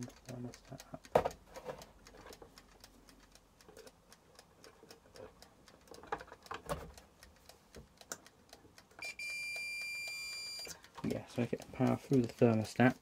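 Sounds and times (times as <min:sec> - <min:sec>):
faint ticking: 0:00.0 - 0:13.0
multimeter continuity beep: 0:09.0 - 0:10.8.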